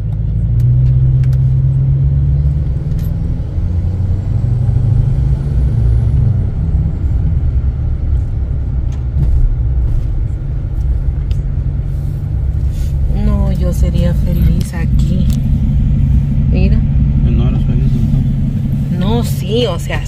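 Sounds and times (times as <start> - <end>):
truck engine and road rumble: 0.0 - 20.0.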